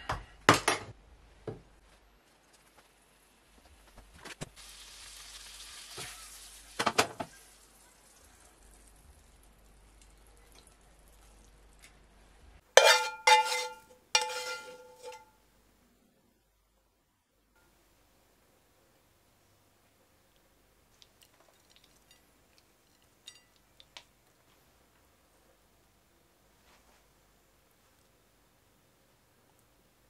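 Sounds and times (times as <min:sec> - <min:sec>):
sauce sizzling in frying pan: 0:04.4 - 0:10.0
metal spoon scraping pan: 0:12.8 - 0:15.3.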